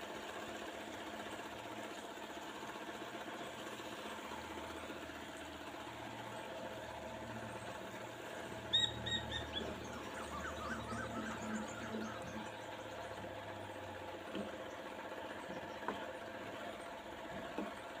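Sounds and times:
electric cooktop motor hum: 0:00.0 - 0:18.0
bird chirping: 0:08.7 - 0:13.1.

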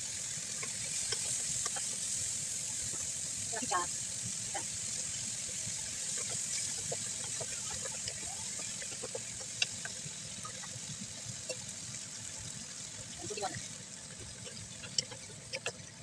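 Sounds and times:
vegetables sizzling in a pan: 0:00.0 - 0:16.0
spatula scraping a pan: 0:05.8 - 0:10.8, 0:14.2 - 0:16.0.

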